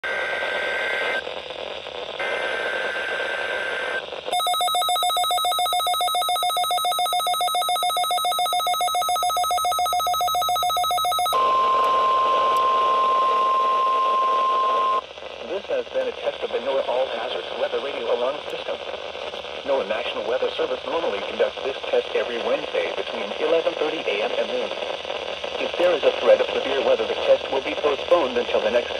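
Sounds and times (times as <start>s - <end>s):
buzzing two-tone digital header: 2.2s - 15.0s
rapid electronic beeping: 2.2s - 15.0s
steady single-pitch alert tone: 4.3s - 15.0s.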